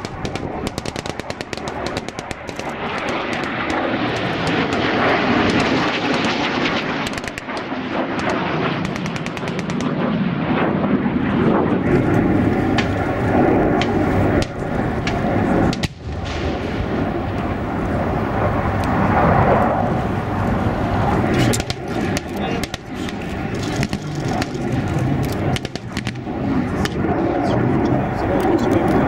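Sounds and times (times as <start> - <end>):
sharp cracks: 0.0 - 10.2, 12.7 - 13.0, 13.7 - 17.6, 21.3 - 27.1
armoured vehicle engines rumbling: 11.1 - 29.0.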